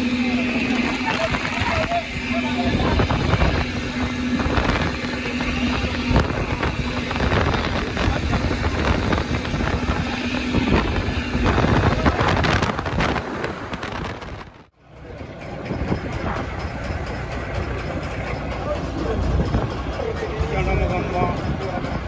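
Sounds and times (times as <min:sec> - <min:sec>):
wind on microphone: 0:00.0 - 0:14.7
boat engine rumbling: 0:00.0 - 0:22.0.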